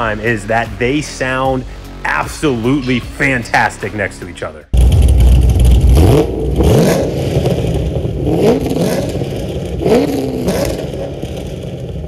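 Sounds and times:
car engine rumble: 4.7 - 12.0
engine throttle blips: 4.7 - 12.0.

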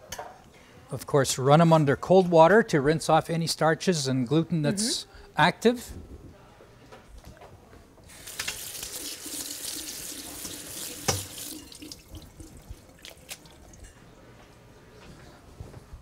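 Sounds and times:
tap water running into colander: 8.1 - 13.9.

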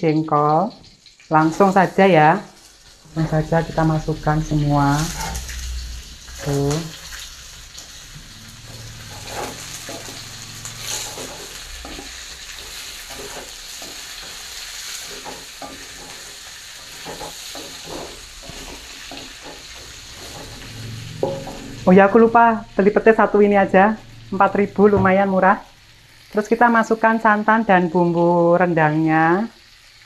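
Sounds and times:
food sizzling in hot oil: 0.0 - 30.0
spatula scraping and tapping pan: 8.6 - 21.8.

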